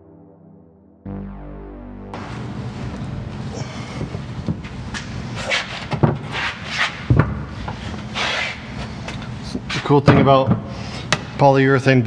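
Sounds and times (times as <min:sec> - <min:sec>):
steady low hum: 0:01.1 - 0:06.3.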